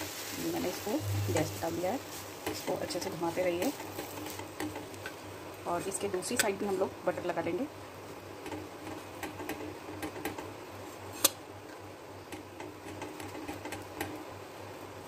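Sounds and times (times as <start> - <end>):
steady low hum: 0.4 - 8.8.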